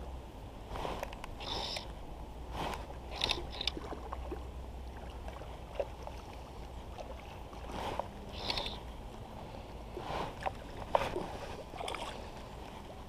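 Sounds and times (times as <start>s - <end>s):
fishing rod and reel clicks: 1.0s - 1.9s, 2.7s - 3.8s, 8.4s - 8.8s.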